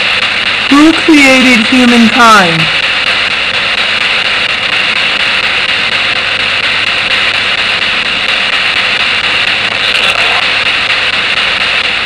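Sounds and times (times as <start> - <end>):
radio static hissing: 0.0 - 12.0.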